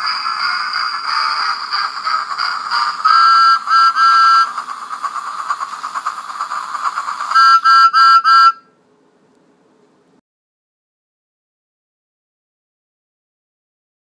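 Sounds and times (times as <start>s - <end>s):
toy train whistle toots: 0.0s - 5.8s, 6.7s - 8.7s
toy train motor whirring: 0.0s - 8.5s.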